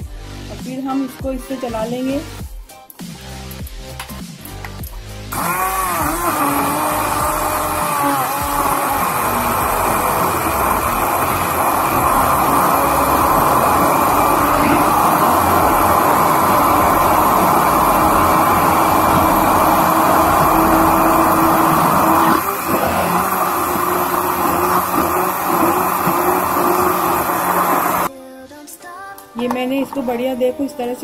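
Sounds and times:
electric hand blender motor whine: 5.3s - 28.1s.

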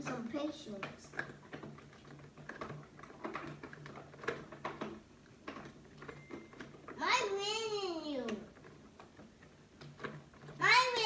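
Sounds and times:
plastic toy parts clicking: 0.0s - 7.0s.

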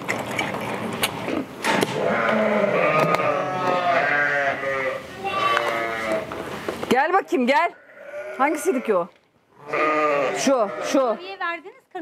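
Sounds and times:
sheep and lambs bleating: 2.0s - 6.3s, 7.6s - 11.3s.

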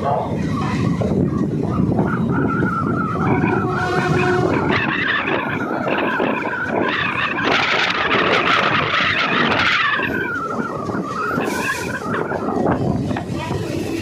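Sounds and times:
train rumbling on rails: 0.0s - 14.0s
hissing screech: 2.5s - 12.7s.

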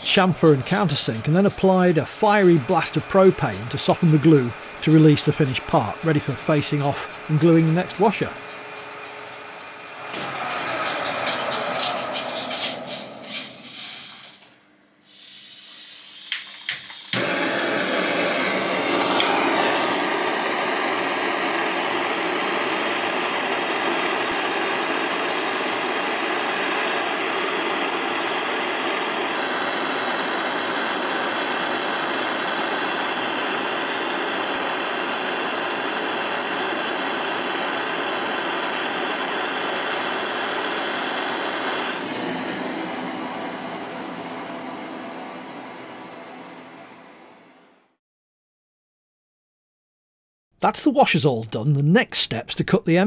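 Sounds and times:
torch burning hiss: 0.1s - 14.5s, 15.1s - 45.0s
torch igniter clicks: 16.2s - 17.8s, 18.9s - 19.6s.

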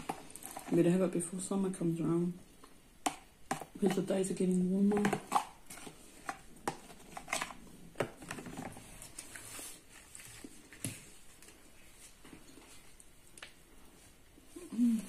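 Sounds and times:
spoon scraping plastic container: 0.0s - 1.0s, 4.8s - 9.9s.

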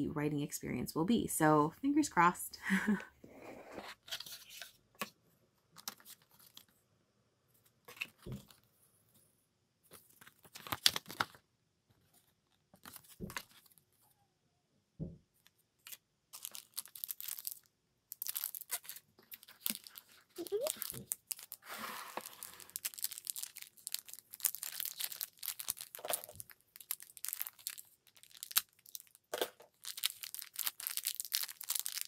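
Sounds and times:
paper and cellophane crinkling: 5.8s - 6.7s, 9.9s - 11.4s, 12.0s - 14.0s, 15.4s - 32.0s.

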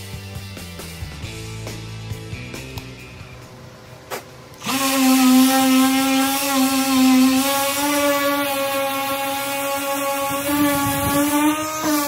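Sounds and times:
power tool motor whining: 4.6s - 12.0s.

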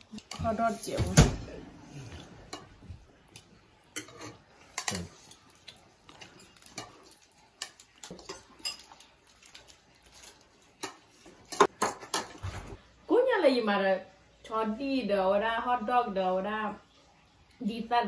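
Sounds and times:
forks clinking against ceramic bowls: 6.2s - 12.2s.

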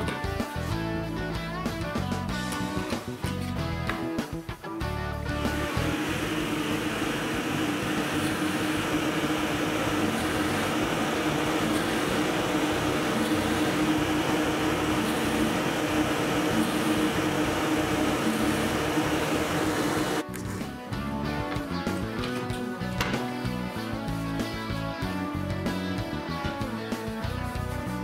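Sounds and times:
drill press hum: 5.4s - 20.2s
cutter bit milling wood: 5.5s - 20.2s.

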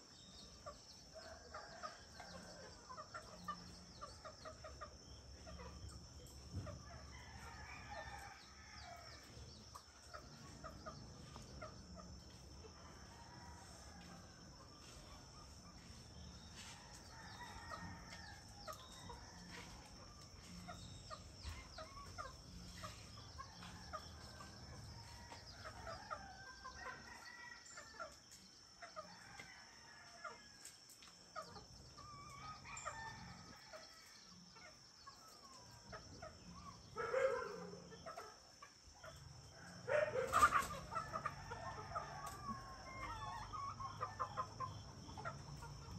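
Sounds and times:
roosters crowing: 6.5s - 28.2s, 31.4s - 34.5s, 39.5s - 45.9s.

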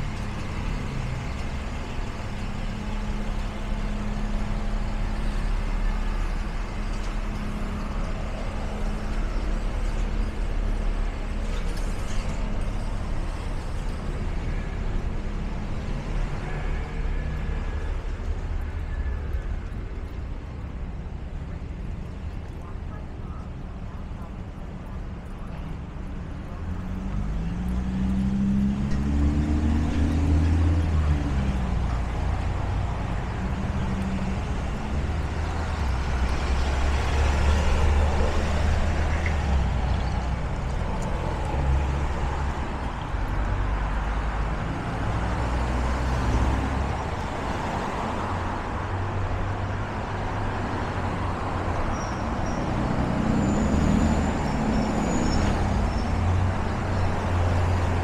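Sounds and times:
city street traffic rumble: 0.0s - 58.0s
vehicle engine accelerating: 26.5s - 58.0s.

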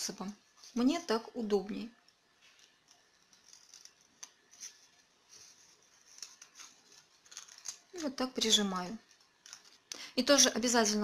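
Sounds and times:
paper crinkling: 2.1s - 9.9s.

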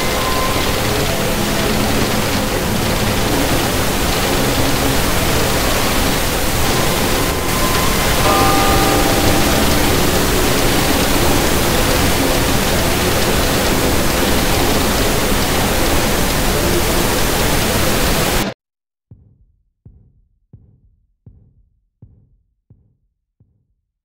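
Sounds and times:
soft low drum beat: 19.1s - 23.7s.

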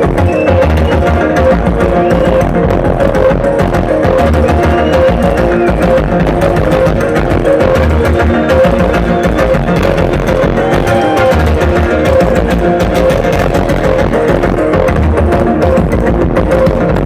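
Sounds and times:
deep bass notes: 0.0s - 17.0s
live synthesizer music: 0.0s - 17.0s.

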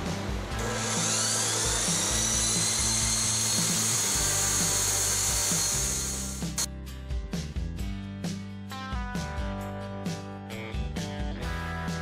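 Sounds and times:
chop saw cutting steel: 0.5s - 6.7s.

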